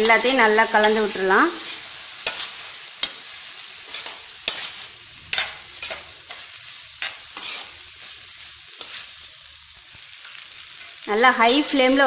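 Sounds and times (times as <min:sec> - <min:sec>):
spatula scraping metal pan: 0:00.0 - 0:08.0
rice sizzling: 0:00.0 - 0:12.0.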